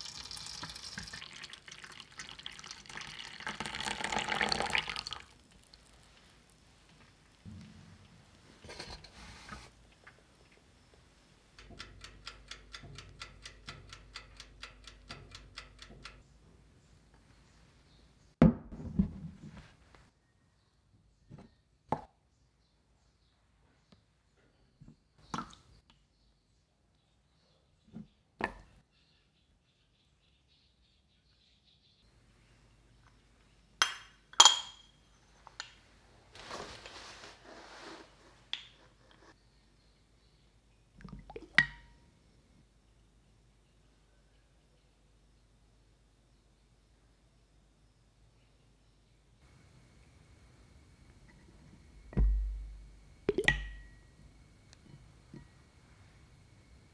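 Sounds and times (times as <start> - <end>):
oven timer ticking rapidly: 11.5 - 16.3
dishware clinking: 33.8 - 35.0
soft rustling: 36.0 - 39.4.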